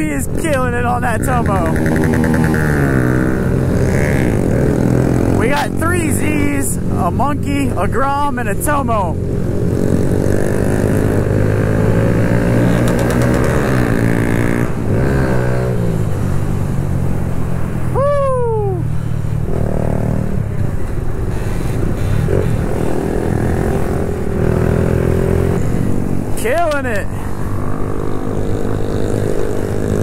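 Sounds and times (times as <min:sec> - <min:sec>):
motorcycle engine revving: 0:00.0 - 0:17.7, 0:19.3 - 0:20.6, 0:21.5 - 0:30.0
road and wind noise: 0:00.0 - 0:30.0
person shouting: 0:17.9 - 0:18.9.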